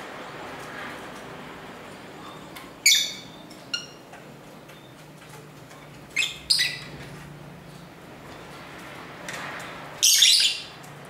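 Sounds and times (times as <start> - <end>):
lovebirds chirping: 2.2 - 5.1, 6.1 - 6.9, 10.0 - 10.8.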